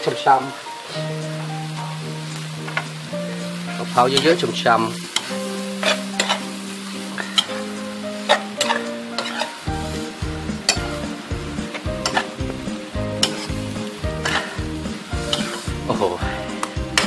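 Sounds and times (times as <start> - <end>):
seafood sizzling in a wok: 0.0 - 17.0
spatula scraping a pan: 5.1 - 9.8, 11.7 - 12.6, 13.2 - 17.0
background music with low beat: 9.7 - 17.0.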